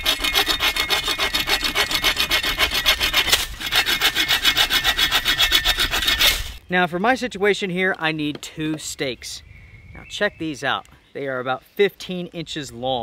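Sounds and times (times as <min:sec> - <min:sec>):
hand saw cutting wood: 0:00.0 - 0:06.6.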